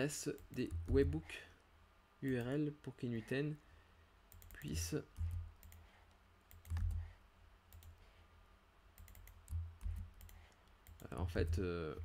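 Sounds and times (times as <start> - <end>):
keyboard keystrokes: 6.5 - 7.0.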